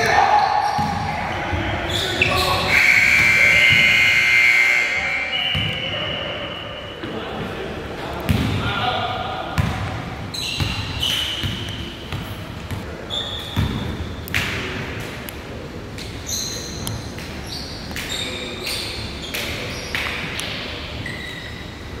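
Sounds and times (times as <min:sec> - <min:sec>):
sneakers squeaking: 0:00.0 - 0:08.6, 0:09.6 - 0:14.7, 0:16.0 - 0:22.0
basketball bouncing on wooden floor: 0:09.6 - 0:10.0.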